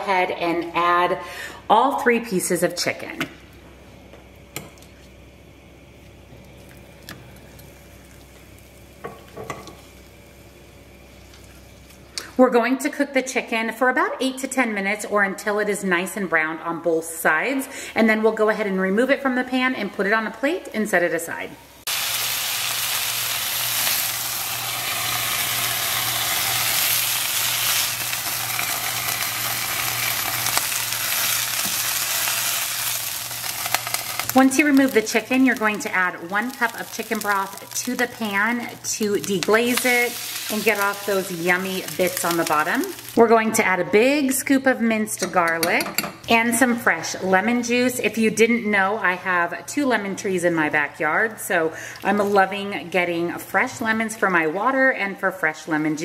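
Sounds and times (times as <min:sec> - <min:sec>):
chicken sizzling in hot oil: 0:07.5 - 0:12.1, 0:21.8 - 0:43.2.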